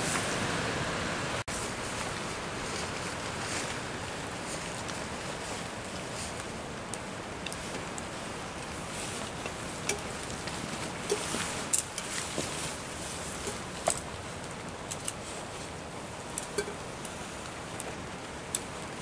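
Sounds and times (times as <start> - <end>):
steady rain: 0.0 - 19.0
fabric rustling: 7.6 - 14.4.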